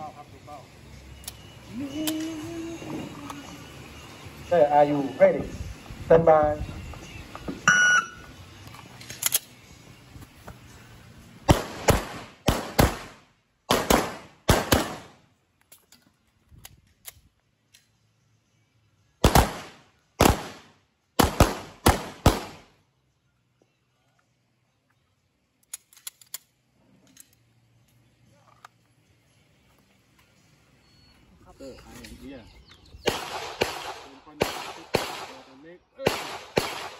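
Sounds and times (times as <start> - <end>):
pistol handling clicks: 8.6 - 9.6, 25.6 - 27.4
pistol shots: 11.5 - 15.2, 19.2 - 22.7, 33.0 - 36.9.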